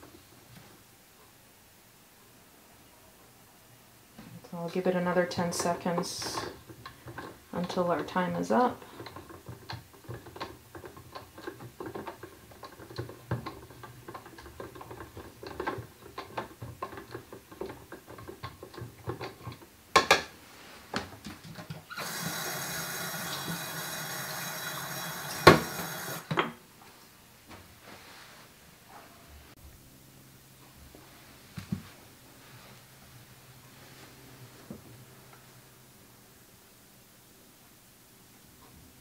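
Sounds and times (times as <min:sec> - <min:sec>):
tap water running into steel sink: 0:21.6 - 0:26.3.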